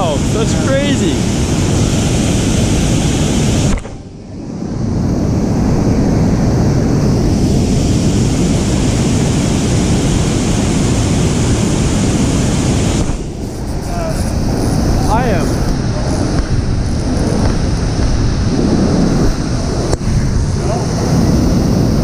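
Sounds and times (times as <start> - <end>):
wind buffeting microphone: 0.0 - 22.0
whitewater rushing over dam: 6.0 - 22.0.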